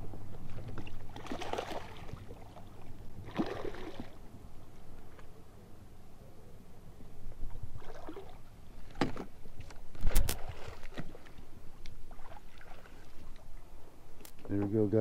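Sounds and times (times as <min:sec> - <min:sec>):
landing net sloshing through water: 0:00.4 - 0:04.2, 0:07.8 - 0:11.4, 0:12.0 - 0:13.4
fish splashing: 0:00.8 - 0:04.2.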